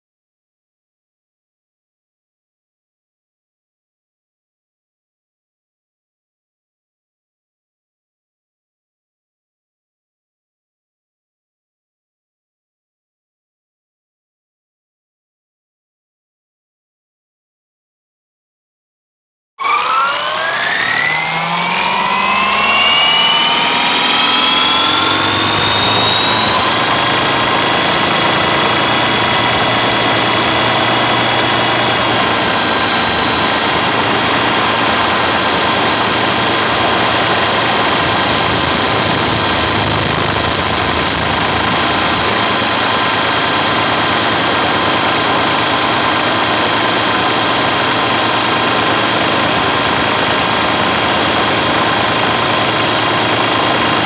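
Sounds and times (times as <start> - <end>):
helicopter whine: 19.6 - 54.0.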